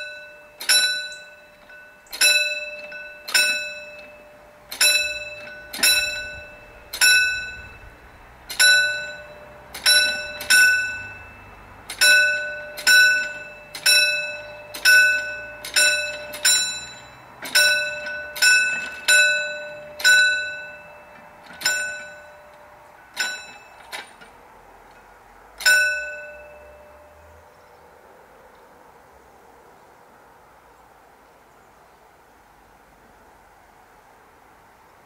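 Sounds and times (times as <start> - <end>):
railway crossing bell ringing: 0.0 - 27.6.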